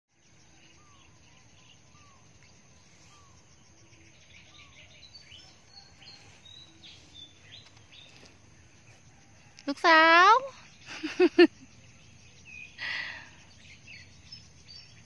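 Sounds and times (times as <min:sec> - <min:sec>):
faint steady hiss: 0:00.2 - 0:15.0.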